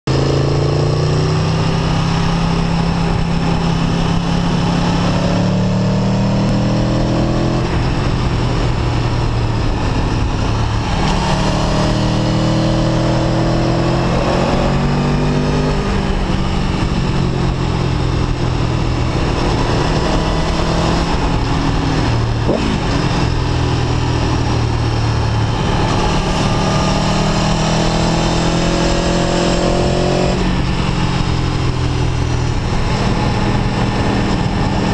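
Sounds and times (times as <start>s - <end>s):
motorcycle engine revving: 0.1s - 34.9s
wind noise on microphone: 0.1s - 34.9s.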